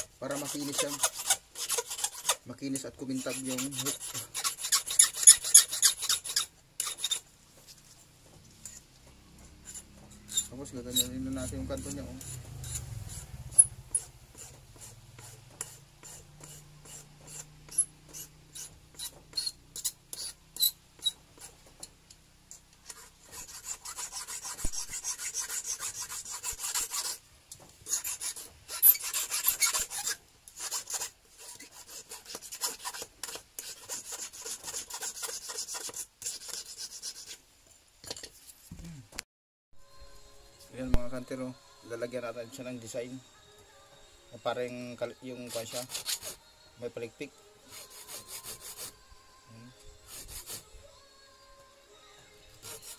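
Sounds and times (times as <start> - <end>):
hand file rasping on metal: 0.0 - 7.3, 9.5 - 21.6, 22.8 - 27.2, 27.8 - 37.4, 45.4 - 46.4, 47.7 - 49.0, 50.1 - 50.7, 52.5 - 52.9.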